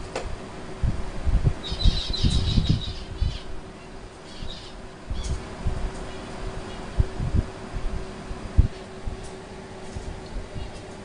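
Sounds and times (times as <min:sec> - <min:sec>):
faint steady hum: 0:00.0 - 0:11.0
finch chirping: 0:01.6 - 0:03.5.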